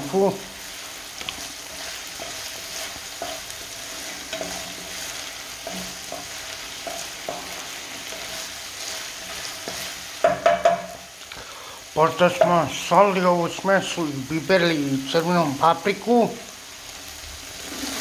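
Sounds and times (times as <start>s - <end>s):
food sizzling in a pan: 0.0s - 18.0s
wooden spatula scraping a pan: 1.2s - 10.9s.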